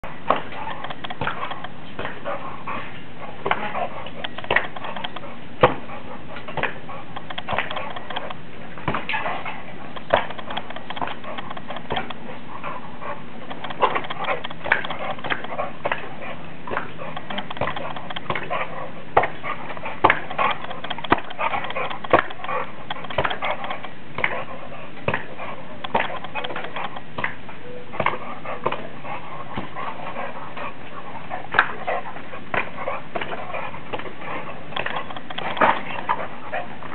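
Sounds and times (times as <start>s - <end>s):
dog sounds: 0.0s - 36.9s
steady background hiss: 0.0s - 36.9s
sharp knocks and clicks: 0.3s - 2.2s, 4.2s - 5.8s, 6.6s - 9.0s, 10.0s - 12.2s, 13.5s - 16.0s, 16.7s - 18.5s, 20.0s - 24.4s, 25.1s - 27.4s, 34.7s - 36.2s.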